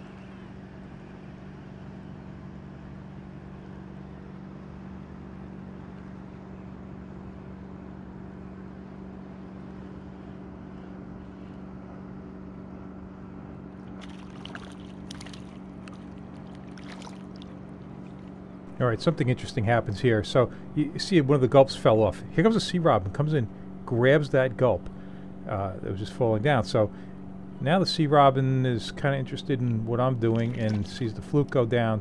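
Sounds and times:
boat engine drone: 0.0s - 32.0s
fish splashing at surface: 13.9s - 18.2s.

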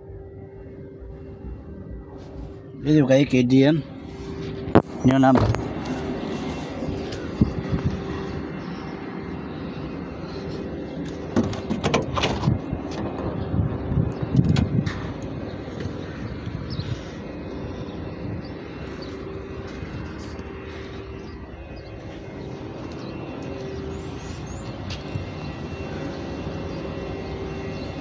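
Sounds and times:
engine drone: 0.0s - 28.0s.

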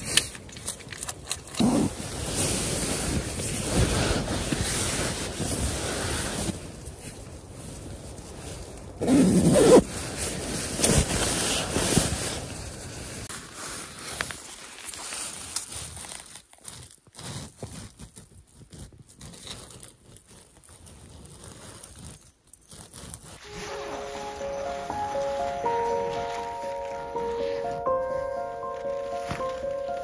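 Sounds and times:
nylon fabric rustling: 1.6s - 15.8s, 22.9s - 30.0s.

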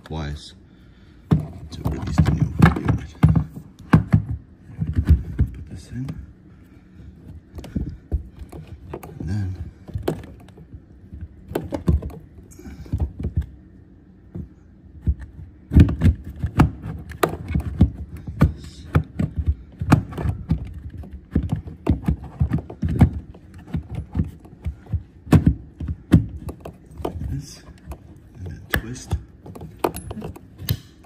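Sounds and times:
plastic knocks and clicks: 14.3s - 30.8s.

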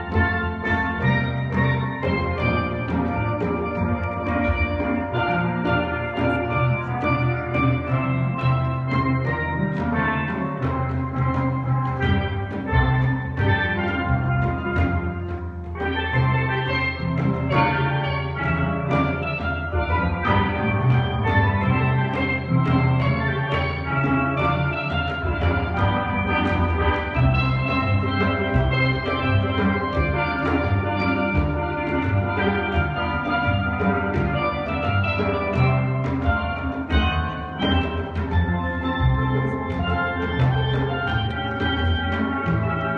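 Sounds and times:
steel band playing: 0.0s - 42.9s.

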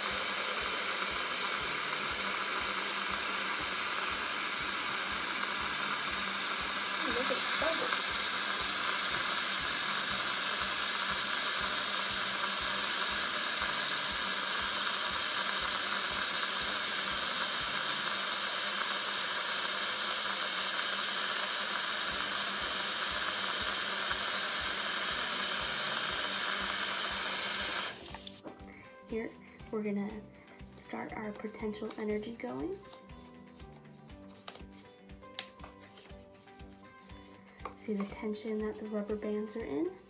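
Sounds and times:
tap water running into sink: 3.0s - 28.3s.

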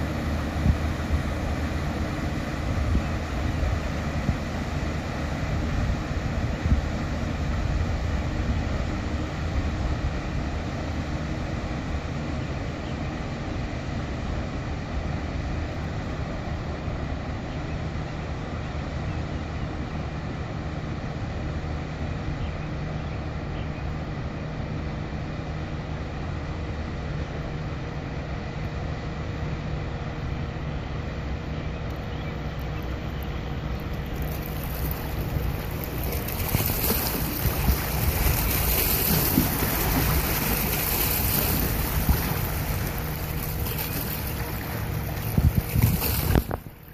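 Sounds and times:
wind noise on microphone: 0.0s - 10.6s, 34.2s - 46.9s
paddleboat engine rumble: 0.0s - 46.9s
rush of water: 0.0s - 46.9s.

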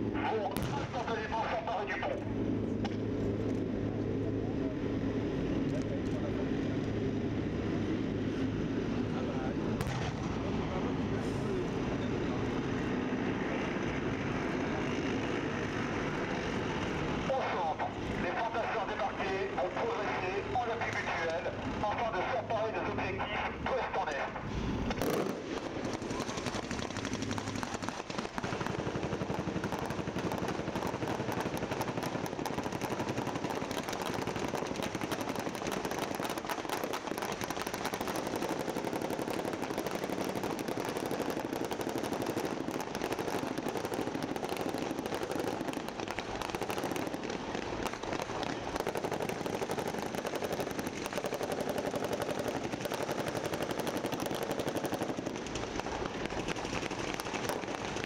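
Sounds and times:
automatic gunfire: 25.0s - 58.0s.

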